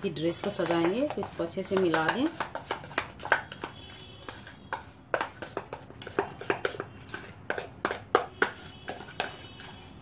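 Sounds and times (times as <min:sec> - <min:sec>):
utensil clinking on metal bowl: 0:00.1 - 0:03.8.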